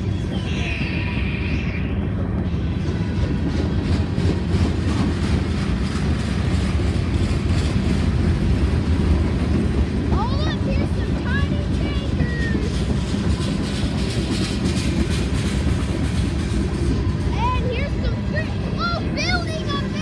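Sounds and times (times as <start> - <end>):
high wheel squeal: 0.0 - 2.9
steel wheels rolling on rails: 0.0 - 20.0.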